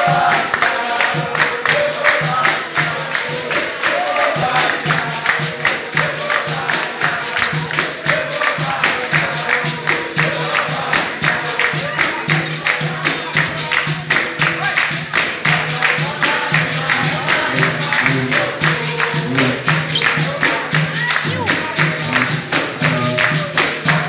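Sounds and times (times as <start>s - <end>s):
hand percussion rhythm: 0.0s - 24.0s
voices singing: 0.0s - 24.0s
low repeating beat: 16.1s - 23.5s.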